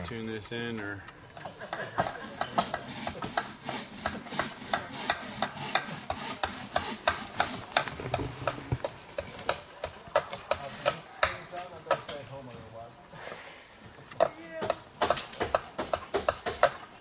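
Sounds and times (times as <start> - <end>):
knives shaving wood: 1.8 - 12.4.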